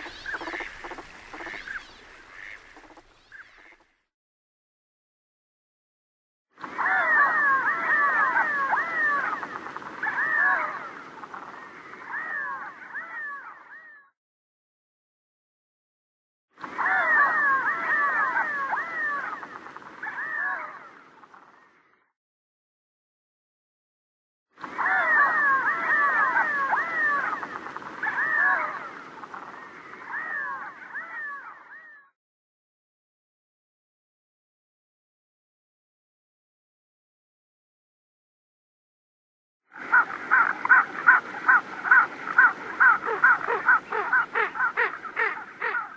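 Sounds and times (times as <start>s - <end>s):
ducks giving meow calls: 0.0s - 3.0s, 39.9s - 45.9s.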